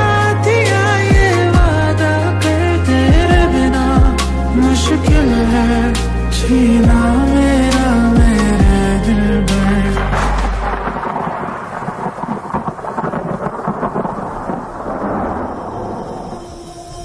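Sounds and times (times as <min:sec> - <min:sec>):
thunder rumble: 0:00.0 - 0:17.0
rain hiss: 0:10.6 - 0:17.0.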